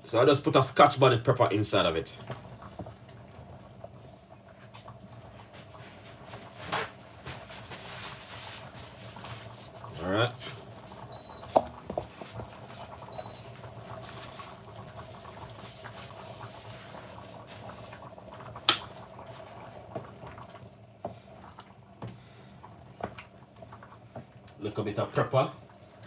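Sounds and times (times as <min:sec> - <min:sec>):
soup simmering in a pot: 0:00.4 - 0:26.0
wooden spoon stirring: 0:07.7 - 0:18.0.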